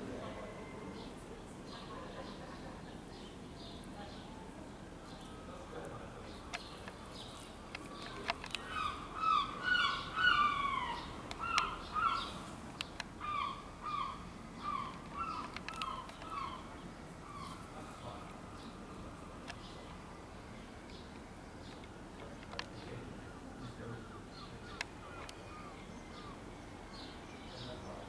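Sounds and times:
bird calling rapidly: 8.0 - 12.4, 13.2 - 17.7.

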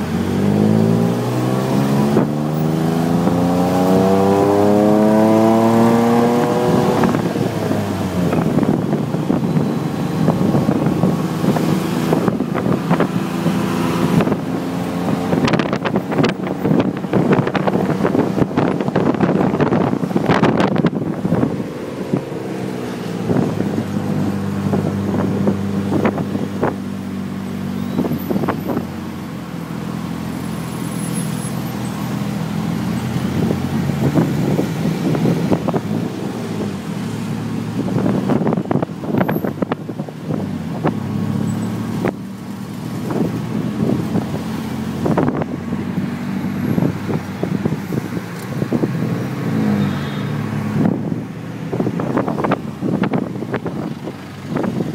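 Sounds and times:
auto rickshaw engine running: 2.0 - 54.9
wind buffeting microphone: 5.3 - 27.4, 32.3 - 41.3, 41.9 - 49.6, 50.5 - 54.9.

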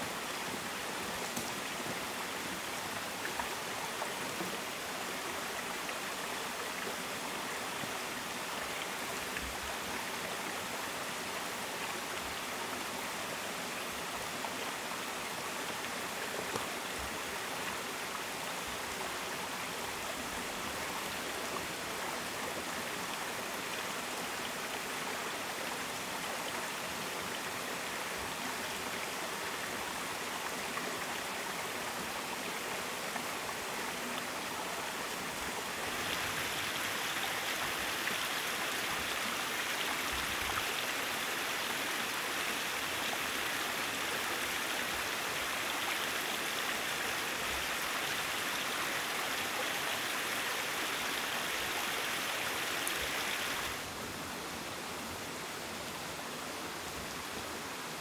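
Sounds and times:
running water rushing: 0.0 - 58.0.

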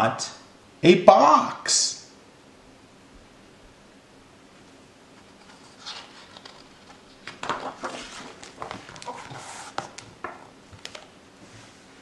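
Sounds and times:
book page rustling: 5.2 - 11.1.

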